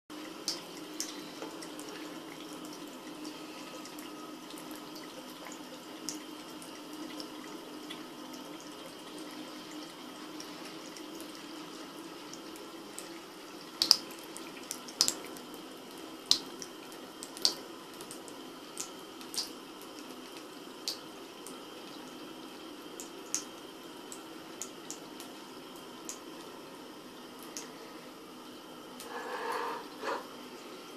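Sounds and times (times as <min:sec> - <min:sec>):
tap running into a sink: 0:29.0 - 0:30.4.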